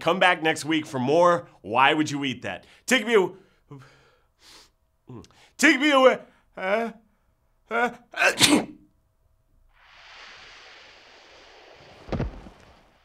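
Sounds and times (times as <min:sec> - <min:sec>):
man sneezing: 0:07.7 - 0:08.9
hissing whoosh: 0:09.7 - 0:13.0
heavy thud: 0:12.0 - 0:12.8.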